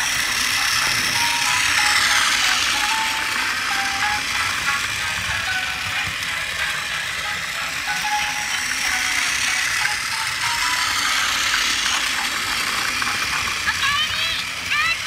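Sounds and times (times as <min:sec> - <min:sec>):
toy train motor whirring: 0:00.0 - 0:15.0
music with short melody notes: 0:00.8 - 0:11.5.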